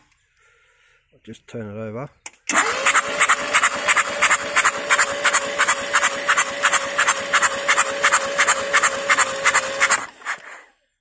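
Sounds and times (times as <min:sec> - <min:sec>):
starter motor whine: 0:02.5 - 0:10.8.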